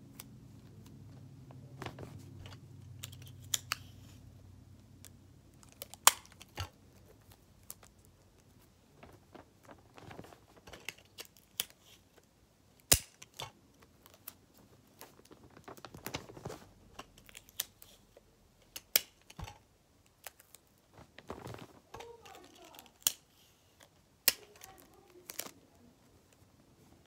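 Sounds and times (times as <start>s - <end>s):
sticky tape pulled and torn: 2.9s - 4.2s, 12.8s - 14.3s, 22.1s - 25.6s
paper crinkling: 5.5s - 12.3s, 13.2s - 18.2s, 20.1s - 26.4s.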